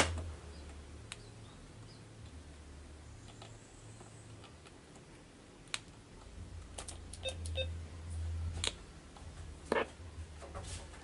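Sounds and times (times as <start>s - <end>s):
short electronic beeps: 7.2s - 7.8s.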